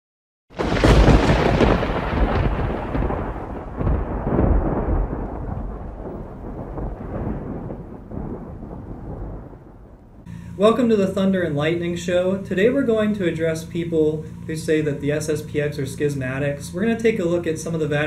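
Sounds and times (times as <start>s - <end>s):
thunder rumbling: 0.6s - 13.6s.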